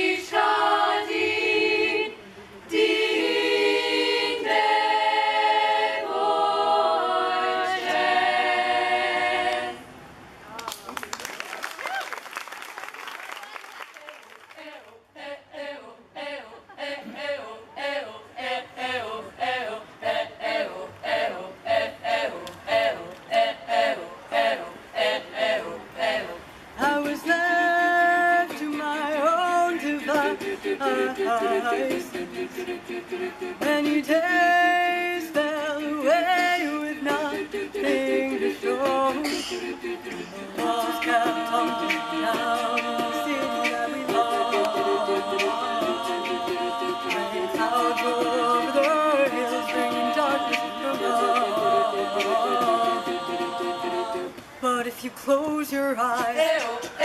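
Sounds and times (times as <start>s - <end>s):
female a cappella group singing: 0.0s - 10.0s, 14.6s - 57.0s.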